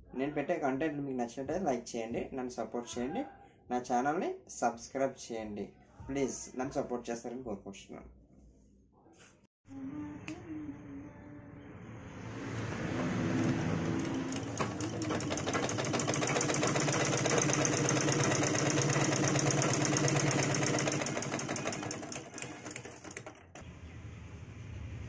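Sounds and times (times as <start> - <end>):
sewing machine rattling: 12.9 - 23.6.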